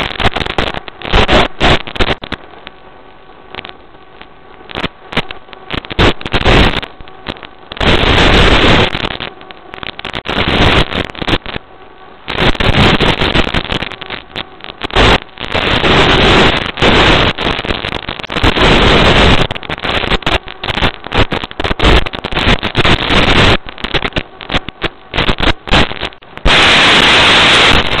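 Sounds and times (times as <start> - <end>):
crackling radio static: 0.0 - 28.0
loud hiss: 25.2 - 28.0.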